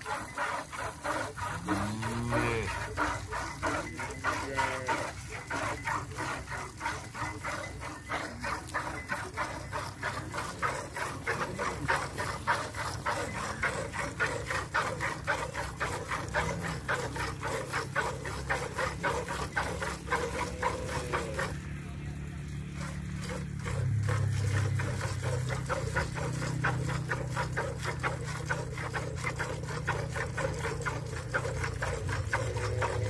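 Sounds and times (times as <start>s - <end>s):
milk squirting into steel bucket: 22.8s - 33.0s.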